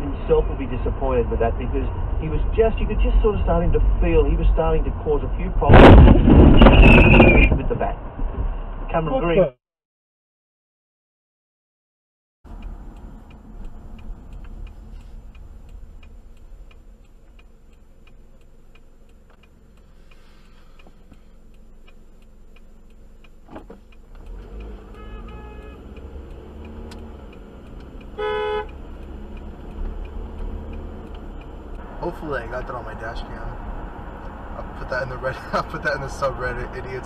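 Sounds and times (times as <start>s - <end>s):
car engine and road rumble: 0.0s - 9.5s, 12.5s - 37.0s
turn signal ticking: 12.5s - 37.0s
car horn blast: 24.8s - 25.8s, 28.1s - 28.8s.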